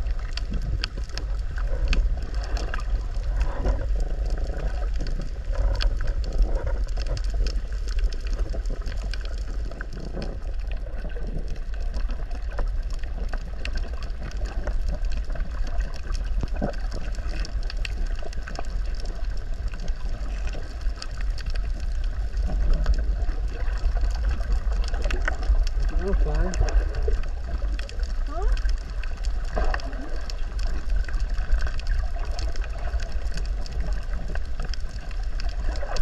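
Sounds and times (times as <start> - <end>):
gurgling bubbles: 0.0 - 36.0
low underwater rumble: 0.0 - 36.0
small clicks and crackles: 0.0 - 36.0.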